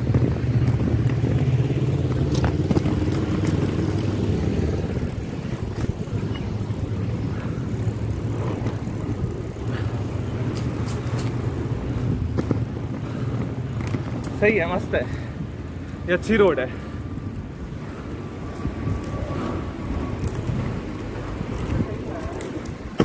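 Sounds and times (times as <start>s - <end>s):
skate wheels rolling on pavement: 0.0s - 23.0s.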